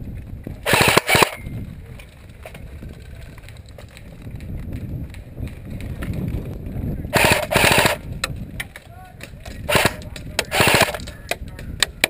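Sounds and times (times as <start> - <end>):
airsoft gun firing bursts: 0.6 - 1.4, 7.2 - 8.0, 9.7 - 11.1.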